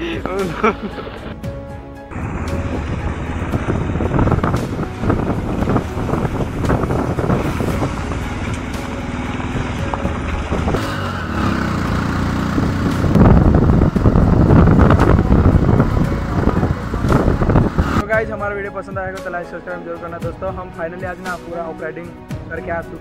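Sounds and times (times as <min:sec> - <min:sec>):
motorcycle engines running: 0:02.1 - 0:18.0.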